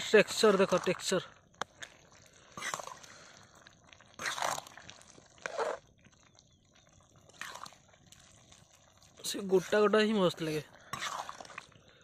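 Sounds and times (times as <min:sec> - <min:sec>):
spatula scraping curry in pan: 0:02.5 - 0:03.1, 0:04.2 - 0:05.8, 0:07.3 - 0:07.8, 0:09.5 - 0:11.8.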